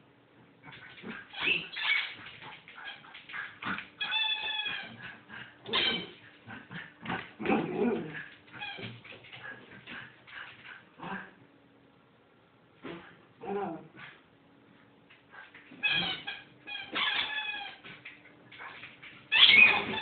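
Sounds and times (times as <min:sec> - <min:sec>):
paws clicking on hard floor: 0:01.9 - 0:11.0, 0:17.0 - 0:20.0
puppy whining and yipping: 0:04.0 - 0:05.0, 0:15.8 - 0:17.8, 0:19.3 - 0:20.0.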